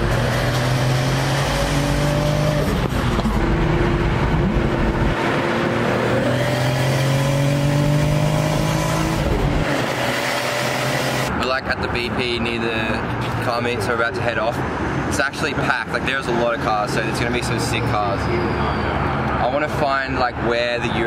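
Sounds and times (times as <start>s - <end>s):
car engine accelerating: 0.0s - 11.4s.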